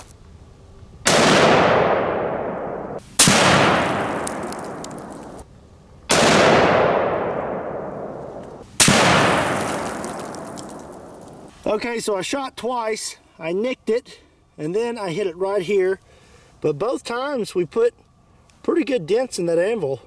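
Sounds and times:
rifle shots: 1.0s - 5.4s, 6.1s - 11.3s.

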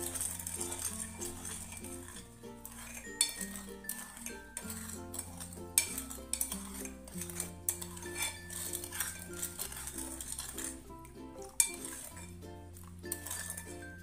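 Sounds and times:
spoon clinking in steel bowl: 0.0s - 10.8s, 11.4s - 14.0s
background music: 0.0s - 14.0s.

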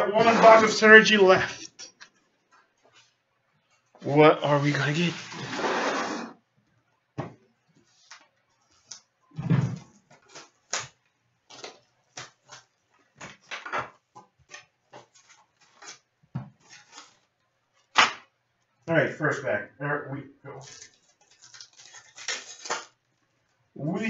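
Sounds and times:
cardboard and wrapper crinkling: 10.0s - 13.6s, 14.4s - 17.3s, 20.6s - 23.1s.

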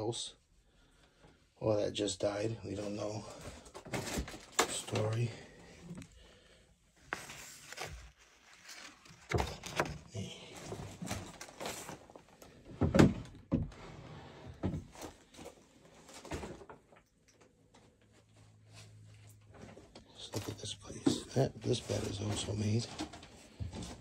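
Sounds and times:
knocks and thuds in a room: 12.7s - 13.8s.

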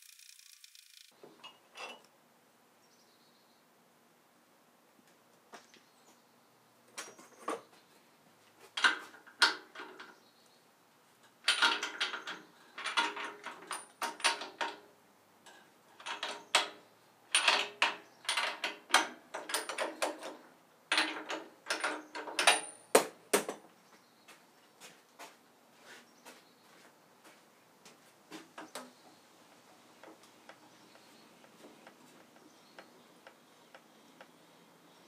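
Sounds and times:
metallic clicks and clinks: 11.2s - 14.8s, 15.4s - 22.9s.

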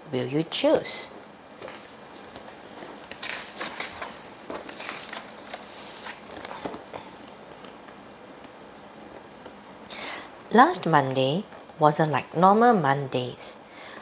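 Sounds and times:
book pages turning: 1.6s - 8.0s.

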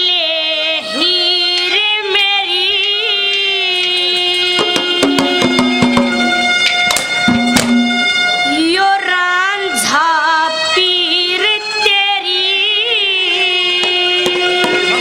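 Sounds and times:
instrumental drone: 0.0s - 15.0s
drum strokes: 4.6s - 8.4s, 13.8s - 15.0s.

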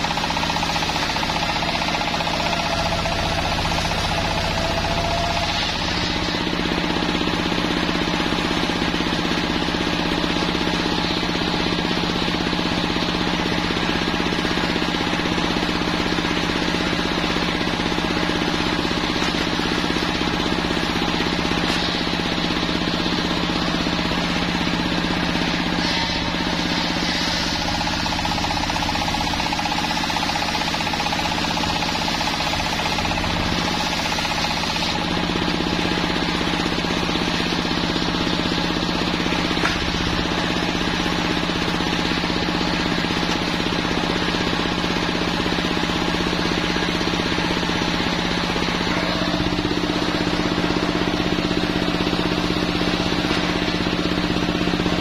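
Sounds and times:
sawmill motor drone: 0.0s - 55.0s
saw blade rasping through wood: 25.5s - 35.2s.

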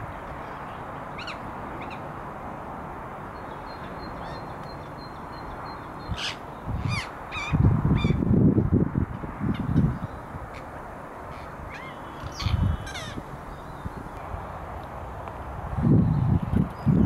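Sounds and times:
woodpecker calling: 11.3s - 13.8s.

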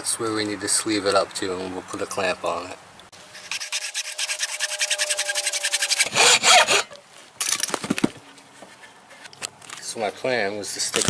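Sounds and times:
saw rasping through hose: 3.2s - 7.0s.

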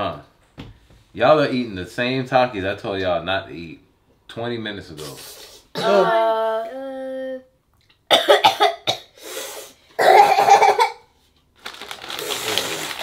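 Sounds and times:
children coughing: 5.8s - 6.2s, 8.1s - 9.2s, 10.0s - 11.1s.

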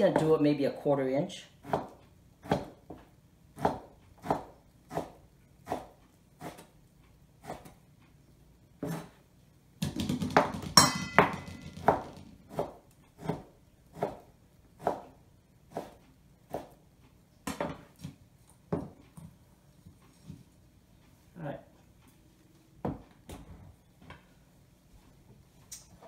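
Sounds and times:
knife slicing on cutting board: 8.8s - 9.2s.

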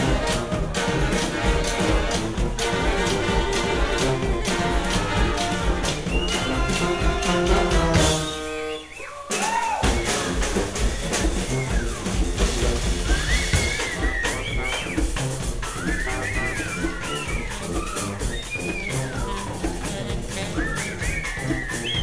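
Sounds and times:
horn chord: 0.0s - 8.9s
drums playing steady beat: 0.0s - 22.0s.

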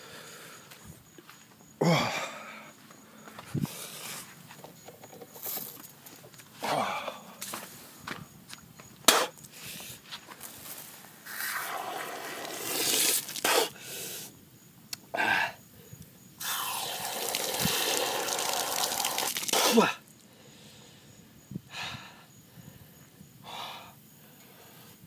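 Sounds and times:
hose water splashing into mouth: 11.2s - 13.8s, 16.4s - 20.0s
man spluttering and gasping: 16.4s - 20.1s.

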